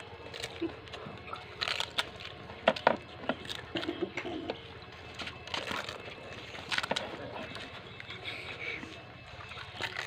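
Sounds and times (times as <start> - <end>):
crisp shells cracking: 0.0 - 4.1, 5.1 - 8.0, 9.5 - 10.0
wet eating sounds: 0.0 - 10.0.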